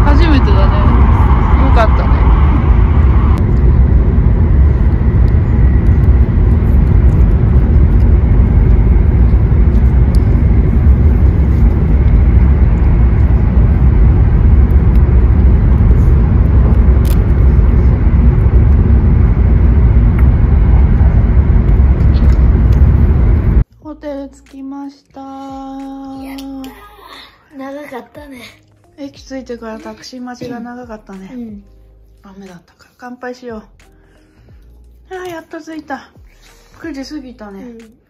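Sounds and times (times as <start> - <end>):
train rumble inside cabin: 0.0 - 23.6.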